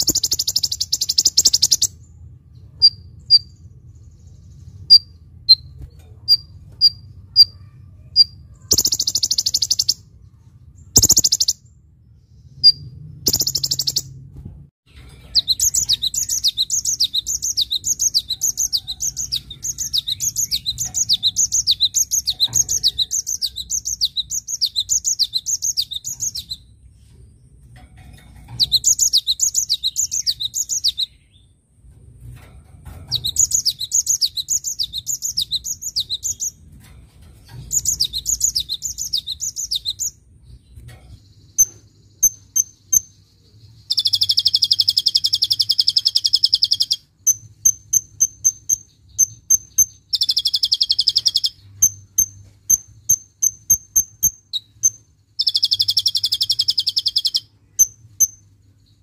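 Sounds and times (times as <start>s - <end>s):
shrill bird trills: 0.0s - 2.0s, 6.3s - 10.1s, 10.8s - 11.7s, 15.0s - 26.7s, 41.5s - 58.5s.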